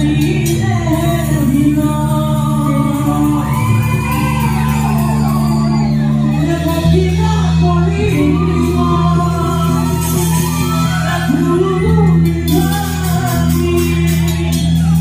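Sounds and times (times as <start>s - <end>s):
bass guitar notes: 0.0s - 15.0s
electric guitars: 0.0s - 15.0s
person singing and shouting: 0.0s - 15.0s.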